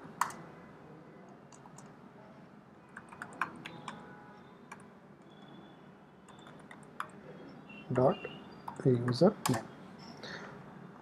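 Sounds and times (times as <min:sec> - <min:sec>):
faint keyboard typing: 0:00.1 - 0:00.5, 0:01.2 - 0:02.0, 0:02.9 - 0:04.1, 0:04.7 - 0:05.4, 0:06.2 - 0:07.3, 0:08.6 - 0:09.7.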